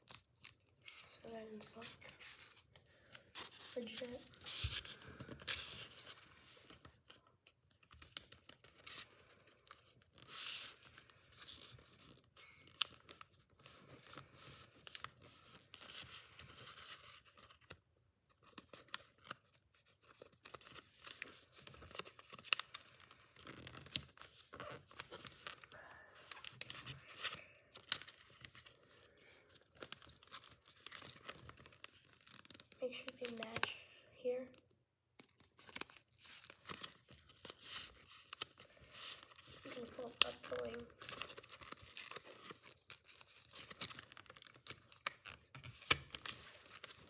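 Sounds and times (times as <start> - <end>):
sharp paper crackles: 0.0 - 7.2, 18.4 - 34.6, 35.2 - 47.0
paper rustling and crinkling: 0.0 - 34.6, 35.2 - 47.0.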